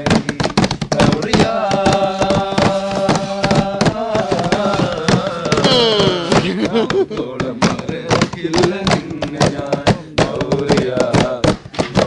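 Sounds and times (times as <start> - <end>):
hands beating on wooden table: 0.0 - 12.0
men singing in chorus: 0.0 - 12.0.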